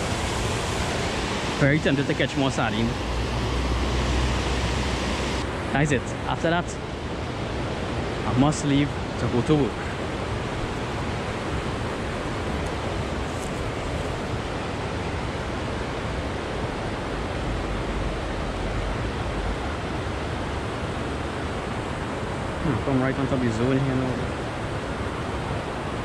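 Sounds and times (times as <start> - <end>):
low rumble: 0.0 - 5.6
steady rushing noise: 0.0 - 26.0.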